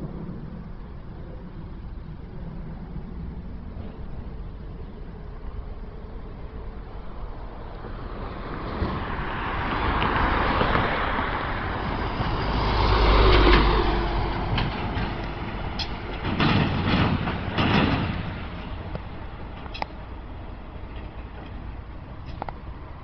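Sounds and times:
dump truck driving past: 3.4 - 23.0
knocks and rattles: 13.3 - 19.8.

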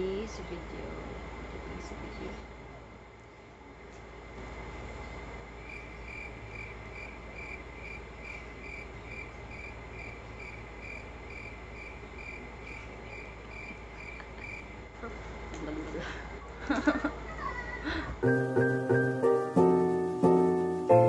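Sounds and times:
low steady hum: 0.0 - 21.0
crickets chirping: 1.0 - 15.5.

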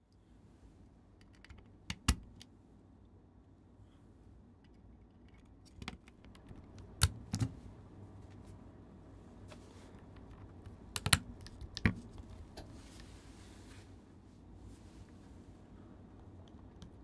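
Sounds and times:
keyboard parts clicking: 10.0 - 12.1.

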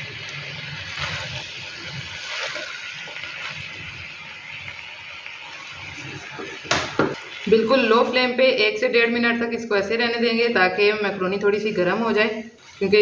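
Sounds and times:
spatula scraping food in a wok: 0.8 - 3.8.

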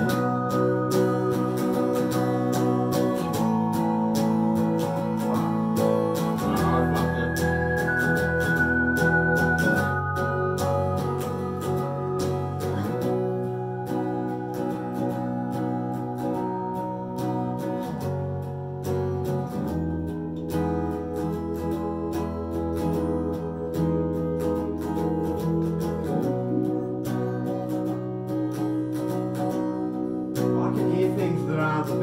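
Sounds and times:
person singing: 0.0 - 18.1, 30.4 - 32.0
electric guitar band music: 0.0 - 32.0.

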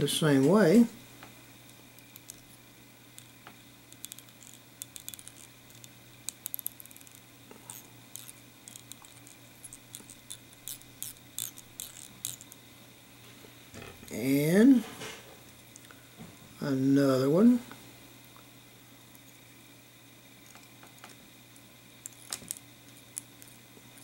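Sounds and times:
thread wrapping ticks and scratches: 1.6 - 12.7, 22.0 - 24.0.

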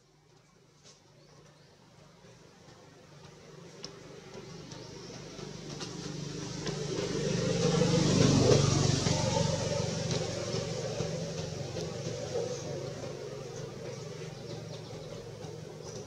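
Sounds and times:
vehicle engine passing by: 3.3 - 16.0.

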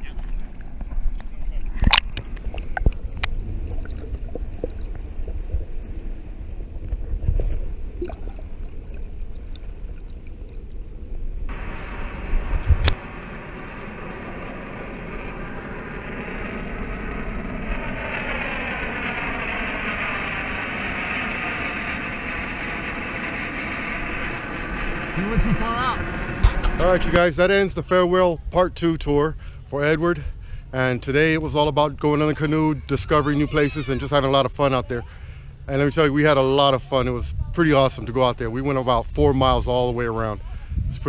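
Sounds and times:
muffled low rumble: 0.0 - 41.0
rushing hiss of water and wind: 11.5 - 15.6.

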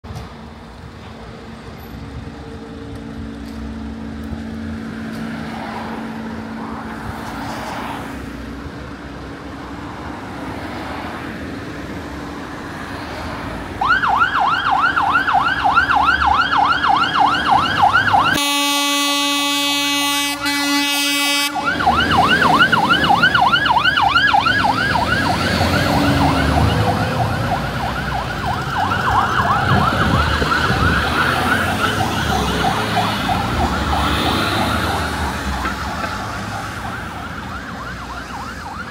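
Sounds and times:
engine and traffic rumble: 0.0 - 38.9
fire truck siren wailing: 13.6 - 38.9
steady horn blast: 18.3 - 21.9.

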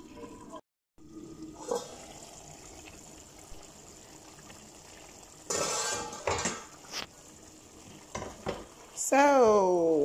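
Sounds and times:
porridge simmering in a pot: 1.0 - 10.0
pot lid clink: 5.5 - 6.7.

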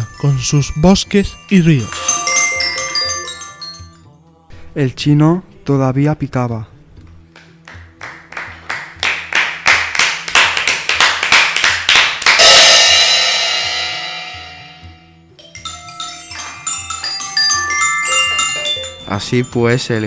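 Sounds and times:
sharp percussion strikes: 0.0 - 4.0, 9.0 - 20.0
tinkling mallet percussion: 0.0 - 4.1, 12.4 - 20.0
loud ringing cymbal crash: 12.4 - 15.3.

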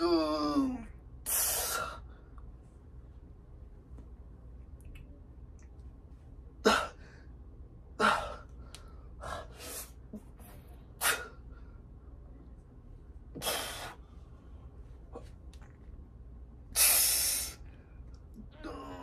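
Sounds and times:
person forceful breaths: 1.2 - 2.4, 6.6 - 10.4, 13.3 - 15.3.

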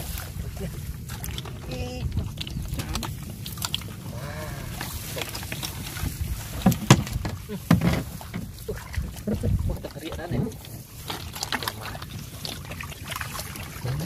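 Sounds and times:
wind rumble on microphone: 0.0 - 11.0
knocks against paddle boat: 6.6 - 8.5.

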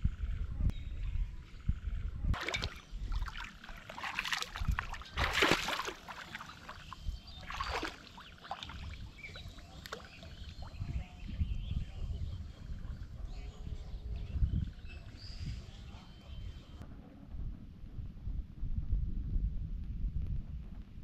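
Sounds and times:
water splashing: 2.4 - 10.3.

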